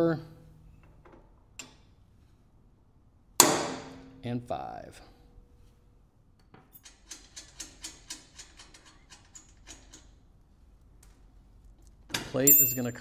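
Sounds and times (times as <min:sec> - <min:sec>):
faint metallic ring: 0:12.5 - 0:13.0.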